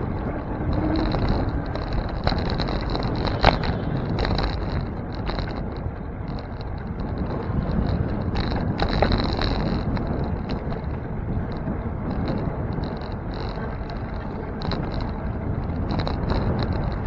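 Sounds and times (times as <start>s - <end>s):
road rumble: 0.0s - 17.0s
wind on microphone: 0.0s - 17.0s.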